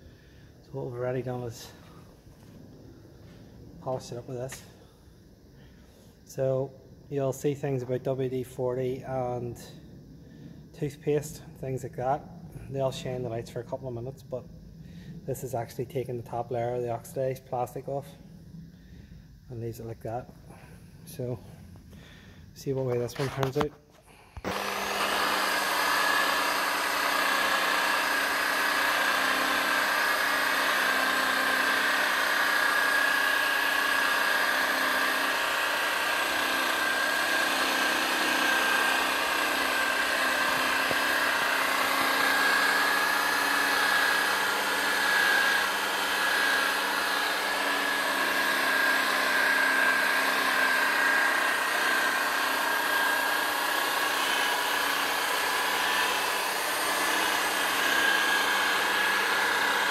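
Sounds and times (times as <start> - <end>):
electric polisher motor whine: 24.4 - 59.9.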